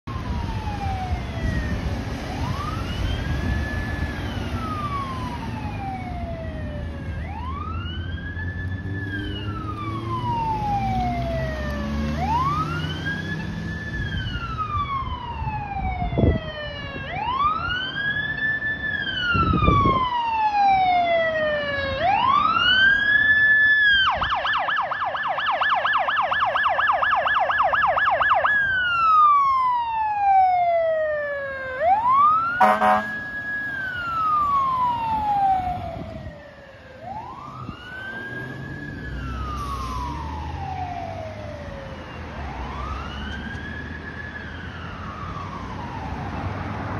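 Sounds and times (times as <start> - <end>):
engine and road rumble: 0.0 - 46.9
fire engine siren wailing: 0.0 - 46.9
air horn blast: 32.6 - 33.2.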